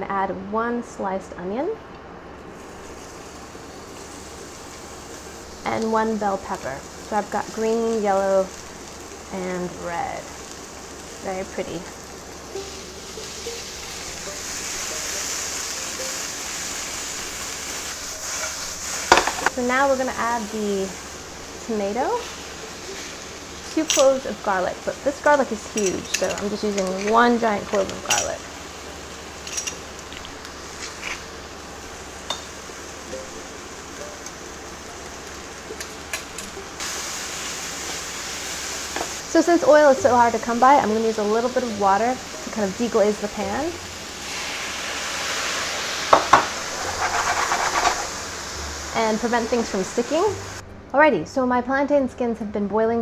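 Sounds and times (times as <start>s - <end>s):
vegetables sizzling in oil: 2.4s - 50.6s
metal tongs clicking on pan: 23.8s - 24.2s, 25.7s - 28.4s, 29.4s - 29.8s.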